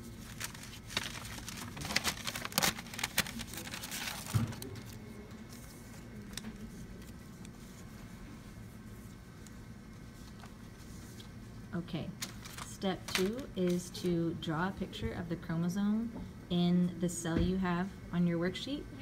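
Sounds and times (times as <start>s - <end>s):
paper rustling: 0.0s - 11.4s, 12.2s - 13.8s.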